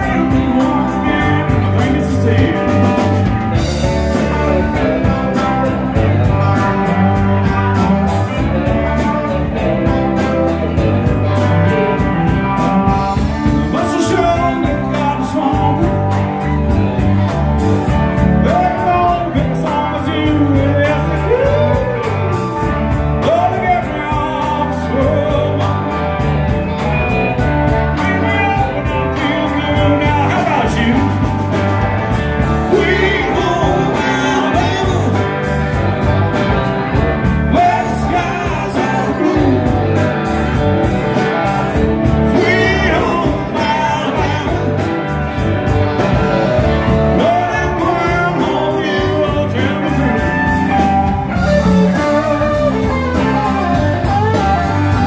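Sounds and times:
person singing: 0:00.0 - 0:17.1, 0:18.2 - 0:26.0, 0:27.7 - 0:31.3, 0:32.4 - 0:35.6, 0:36.5 - 0:40.2, 0:42.0 - 0:45.2, 0:47.1 - 0:55.0
country rock band playing: 0:00.0 - 0:55.0.

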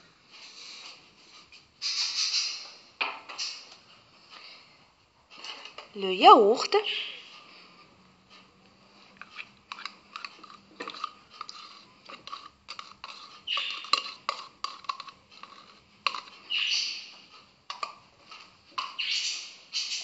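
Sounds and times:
yogurt scraping from pot: 0:09.2 - 0:17.1.

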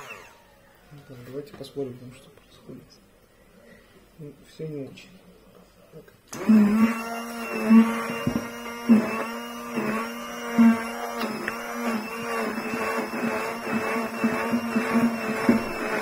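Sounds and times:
stick blender running: 0:00.0 - 0:00.5, 0:06.3 - 0:16.0.

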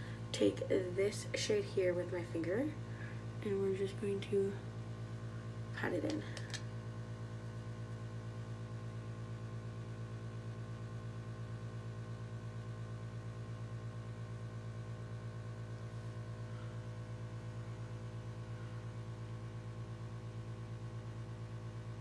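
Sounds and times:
heating system pulsing drone: 0:00.0 - 0:08.6.

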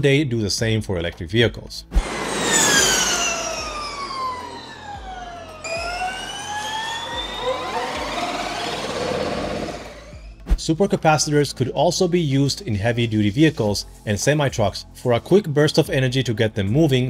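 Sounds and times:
electric race car whine: 0:02.0 - 0:10.4.

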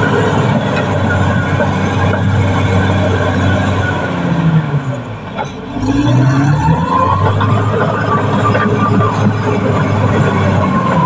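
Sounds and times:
bulldozer diesel engine: 0:00.0 - 0:11.0.

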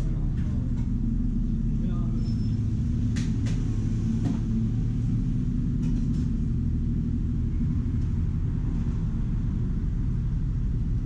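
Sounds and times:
low background rumble: 0:00.0 - 0:11.0
low hum: 0:00.0 - 0:11.0.

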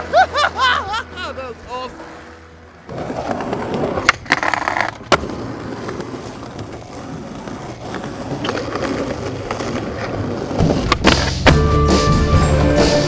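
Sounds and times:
skateboard wheels rolling on stone: 0:01.9 - 0:11.7.

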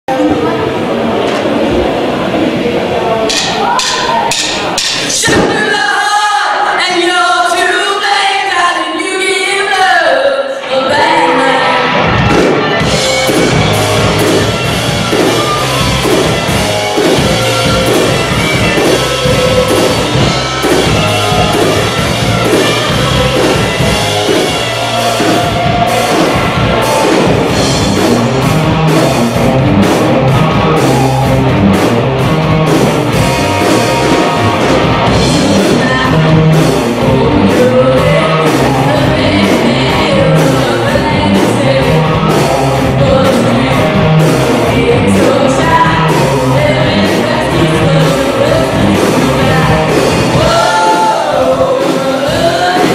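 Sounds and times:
bass guitar: 0:00.0 - 0:05.6, 0:10.9 - 0:52.9
drum kit beat: 0:03.3 - 0:05.8, 0:12.0 - 0:52.9
person singing: 0:03.3 - 0:27.8, 0:34.4 - 0:52.9
distorted electric guitars: 0:10.6 - 0:52.9.

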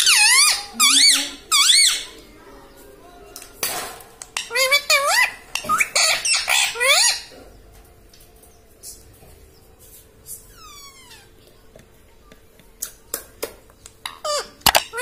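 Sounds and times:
parakeet squawking: 0:00.0 - 0:02.2, 0:04.3 - 0:07.3, 0:10.5 - 0:11.4, 0:14.1 - 0:15.0.

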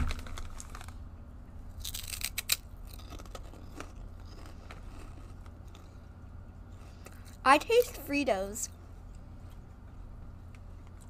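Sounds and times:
plastic snack bag rustling: 0:00.0 - 0:01.0
chip crunching: 0:00.0 - 0:08.0.

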